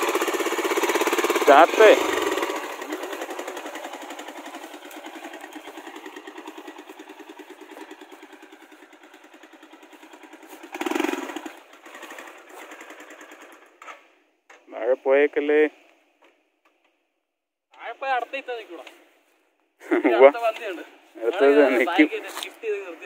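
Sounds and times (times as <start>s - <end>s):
motorcycle engine running: 0.0s - 13.8s.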